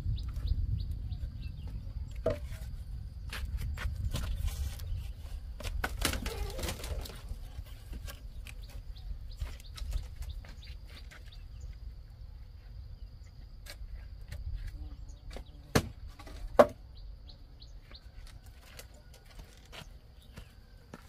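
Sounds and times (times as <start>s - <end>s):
birds chirping: 0.0s - 2.7s, 3.7s - 21.0s
wood knocking on wood: 2.2s - 2.6s.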